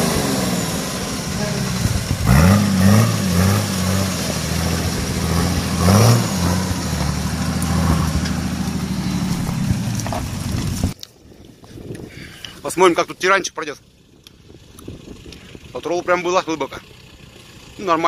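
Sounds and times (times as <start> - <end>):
off-road vehicle engine revving: 0.0 - 11.0, 12.8 - 18.0
water splashing: 0.6 - 11.0.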